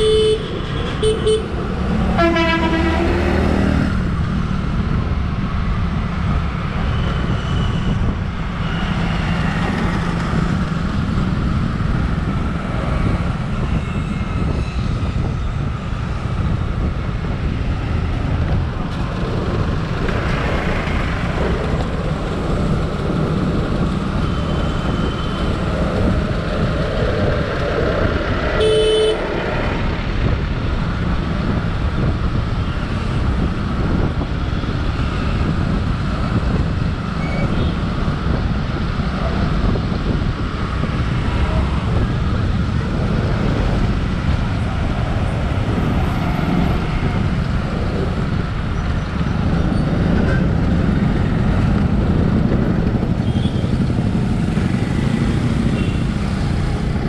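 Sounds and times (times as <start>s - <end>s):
wind noise: 0.0s - 57.0s
vehicle horn honk: 28.6s - 29.2s.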